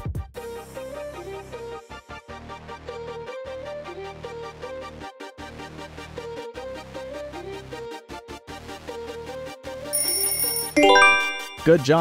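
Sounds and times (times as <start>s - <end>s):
synth melody with bass line: 10.8s - 11.8s.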